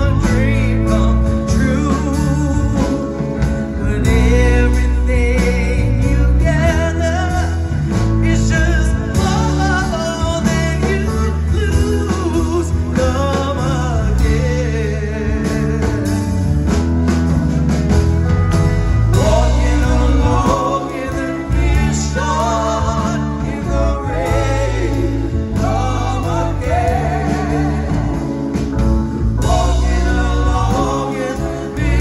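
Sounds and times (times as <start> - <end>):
live rock band playing: 0.0 - 32.0
person singing with vibrato: 19.1 - 32.0.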